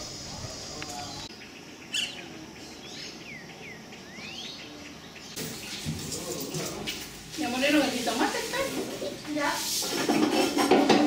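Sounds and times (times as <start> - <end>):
bird chirp: 0.0 - 6.5.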